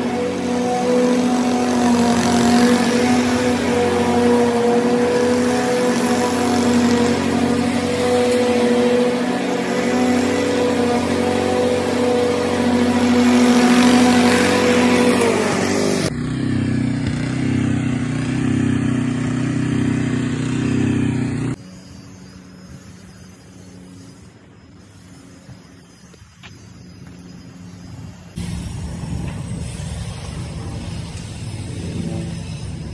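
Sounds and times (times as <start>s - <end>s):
lawn mower engine running: 0.0s - 21.8s, 28.4s - 32.9s.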